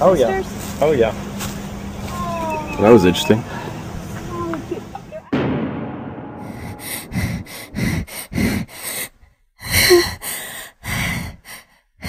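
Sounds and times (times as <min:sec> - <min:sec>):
rapid breathy breathing: 0:06.6 - 0:12.0.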